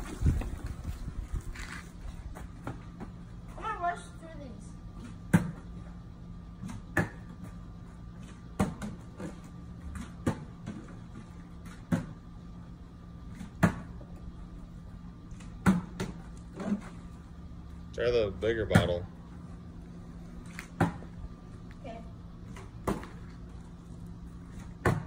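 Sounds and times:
faint hum: 0:00.0 - 0:25.0.

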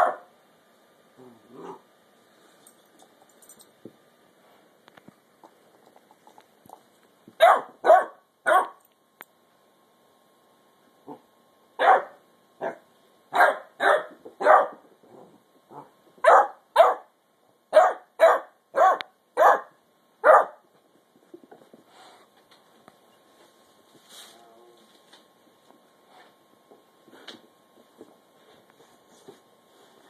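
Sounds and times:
puppy barking: 0:00.0 - 0:00.3, 0:07.4 - 0:08.8, 0:11.8 - 0:14.8, 0:16.2 - 0:17.1, 0:17.7 - 0:20.6.

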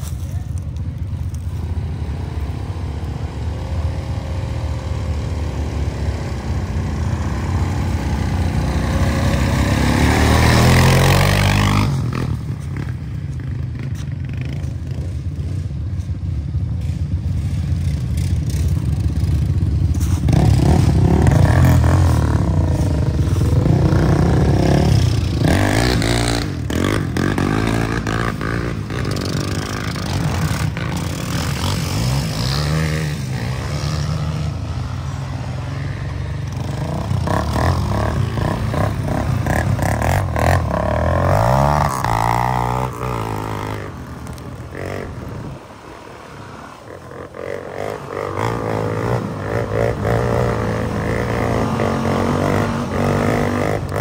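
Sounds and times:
atv engines revving: 0:00.0 - 0:54.0.

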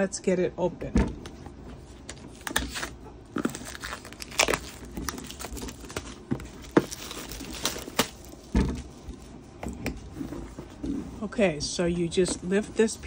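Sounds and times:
plastic wrap crinkling and tearing: 0:02.3 - 0:09.3.

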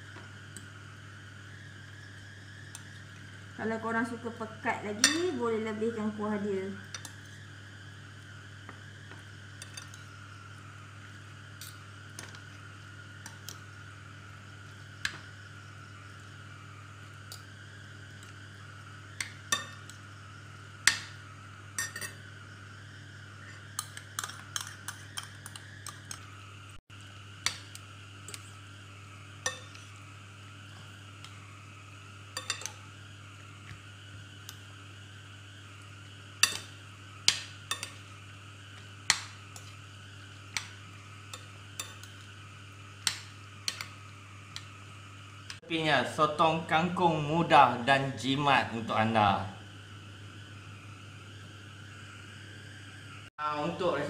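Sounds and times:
cutlery clinking on glass bowl: 0:21.8 - 0:22.2.

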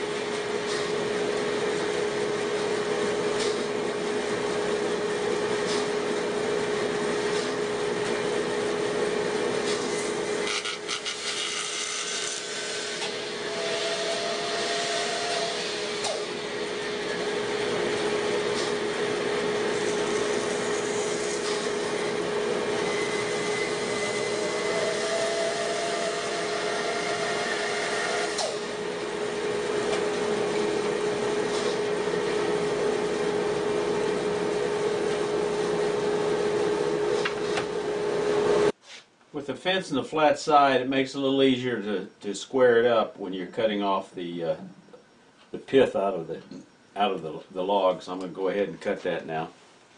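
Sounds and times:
bandsaw cutting log: 0:09.6 - 0:32.5.

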